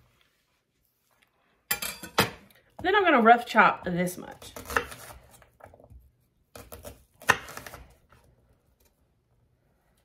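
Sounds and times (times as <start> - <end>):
knife chopping on cutting board: 4.5 - 8.0.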